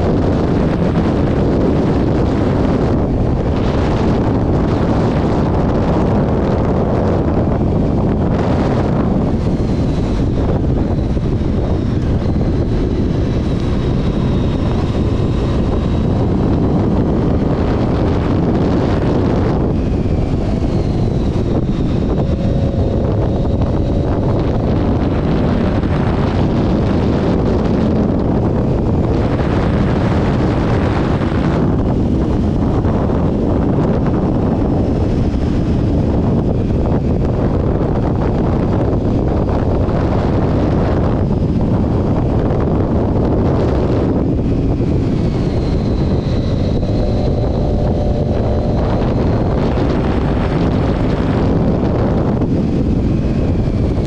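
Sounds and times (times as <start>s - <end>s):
motorcycle engine cruising: 0.0s - 54.0s
wind buffeting microphone: 0.0s - 54.0s.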